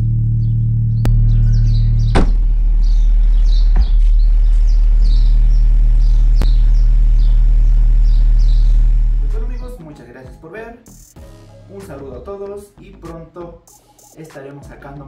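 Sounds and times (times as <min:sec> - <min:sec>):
deep bass notes from subwoofers: 0:00.0 - 0:10.1
birds chirping: 0:00.4 - 0:12.6
sharp knock: 0:02.1 - 0:02.4.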